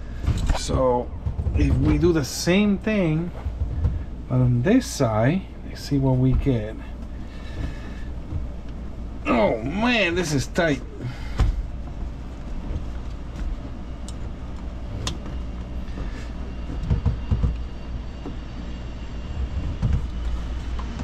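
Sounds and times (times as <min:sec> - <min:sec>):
workshop hum: 0:00.0 - 0:21.0
soft knocks among hoses: 0:00.1 - 0:04.9, 0:05.8 - 0:08.9, 0:11.3 - 0:18.4, 0:19.4 - 0:21.0.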